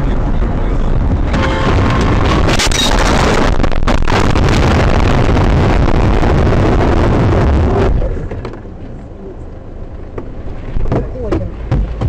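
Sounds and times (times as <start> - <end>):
steady rushing rumble: 0.0 - 12.0.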